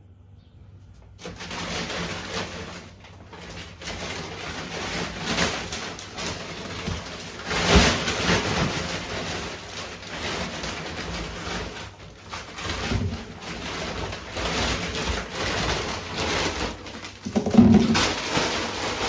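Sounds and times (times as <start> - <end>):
plastic packs rustling: 1.0 - 19.0
pack knocking on wooden table: 17.2 - 18.2.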